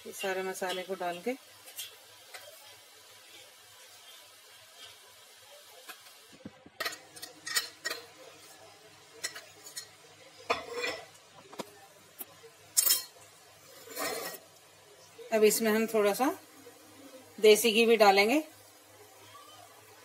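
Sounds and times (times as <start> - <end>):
spoon scraping steel jar: 13.8 - 14.4.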